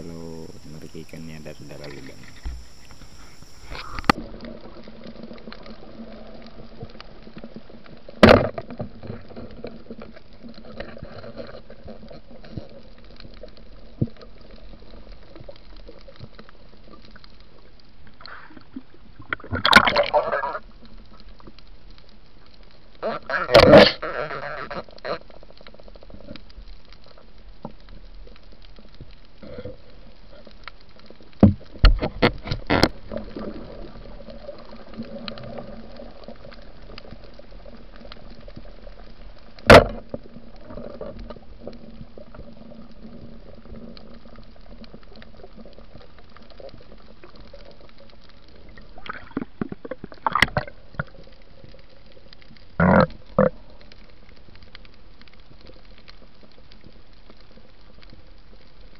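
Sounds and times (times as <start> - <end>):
underwater hiss with bubbling: 0.0 - 7.3.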